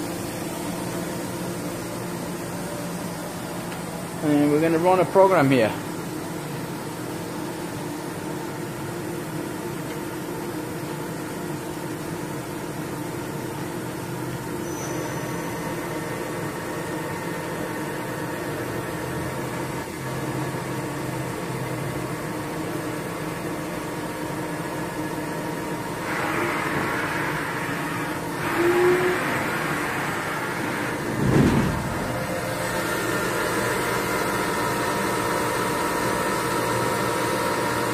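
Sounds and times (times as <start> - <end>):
machining center humming: 0.0 - 37.9.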